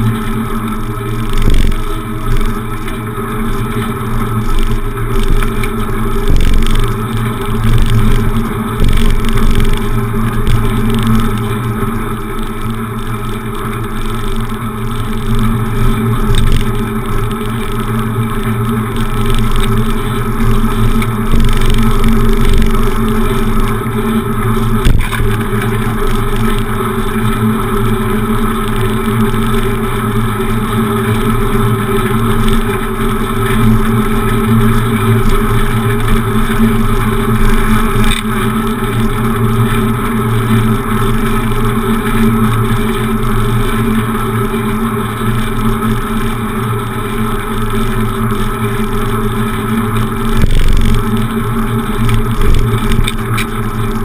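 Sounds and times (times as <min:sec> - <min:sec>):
wind and road noise from bicycle: 0:00.0 - 0:54.0.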